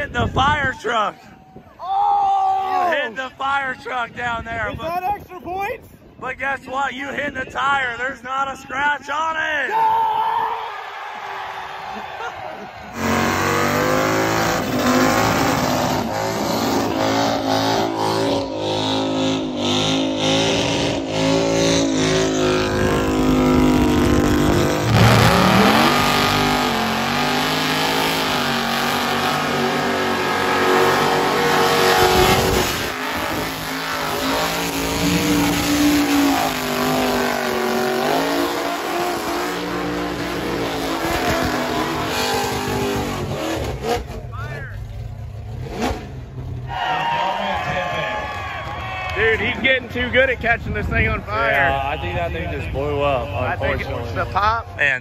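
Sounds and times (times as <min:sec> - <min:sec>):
engines revving high: 0:12.8 - 0:48.0.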